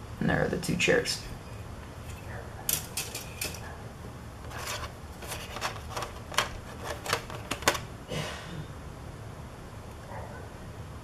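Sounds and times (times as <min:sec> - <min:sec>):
plastic sprues clicking: 0:04.5 - 0:07.9.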